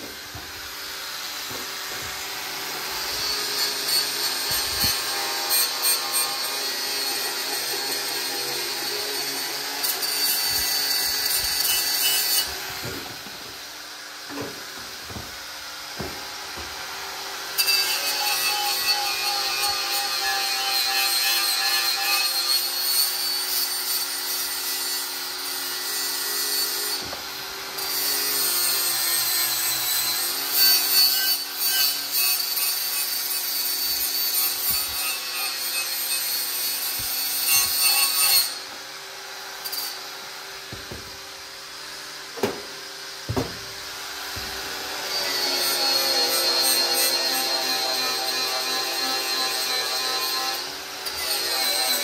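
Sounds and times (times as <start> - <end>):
angle grinder whining on metal: 0.0 - 52.0
knocks: 40.7 - 41.2, 42.4 - 42.7, 43.3 - 43.7.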